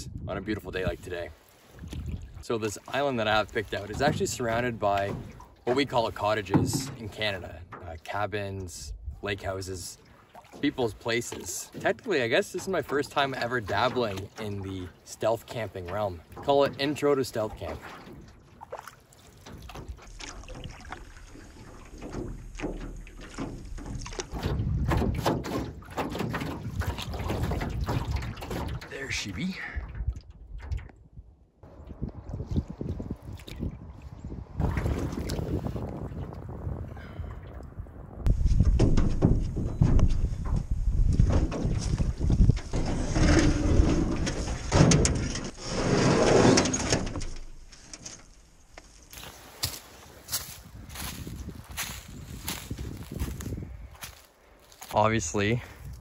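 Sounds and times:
wind rumble on microphone: 0:00.0 - 0:02.4, 0:08.6 - 0:09.6, 0:19.5 - 0:28.9, 0:29.6 - 0:45.6, 0:49.2 - 0:56.0
water lapping against hull: 0:00.6 - 0:56.0
paddle strokes through water: 0:01.3 - 0:08.1, 0:09.8 - 0:30.9, 0:31.7 - 0:37.4
metal canoe scraping on rocks: 0:02.4 - 0:08.7, 0:10.6 - 0:29.5, 0:38.3 - 0:53.6.

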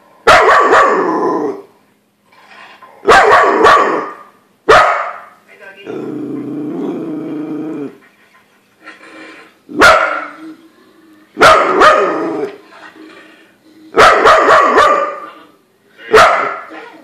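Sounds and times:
dog barking: 0:00.2 - 0:01.0, 0:03.0 - 0:05.4, 0:09.8 - 0:10.3, 0:11.4 - 0:12.2, 0:14.0 - 0:15.3, 0:16.1 - 0:16.7.

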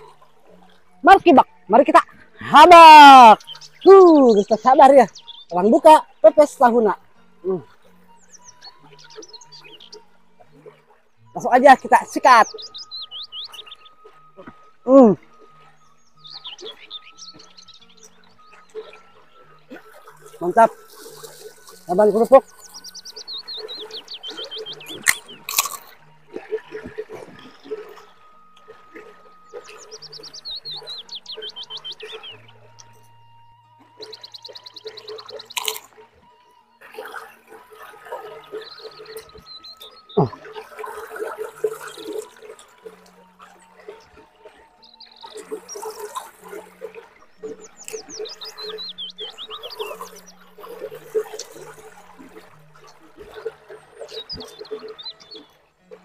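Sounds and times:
bird chirping: 0:01.0 - 0:56.0
chewing crunchy cracker: 0:25.0 - 0:25.9, 0:35.6 - 0:35.9
person chewing leafy greens: 0:25.0 - 0:27.2, 0:35.6 - 0:35.9.

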